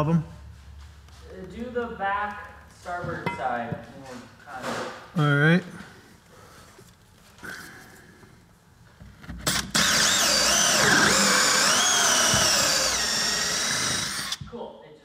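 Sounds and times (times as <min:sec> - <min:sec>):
cordless drill whining: 0:09.4 - 0:14.4.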